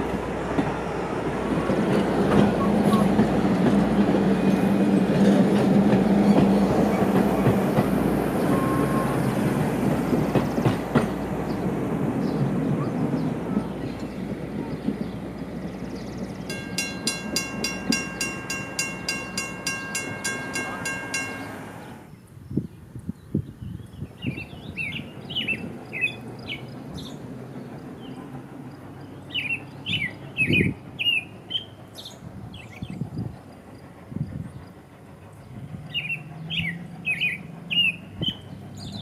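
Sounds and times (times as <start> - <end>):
train rumble: 0.0 - 23.0, 24.2 - 39.0
birds chirping: 10.1 - 22.6
bell ringing rapidly: 16.5 - 21.8.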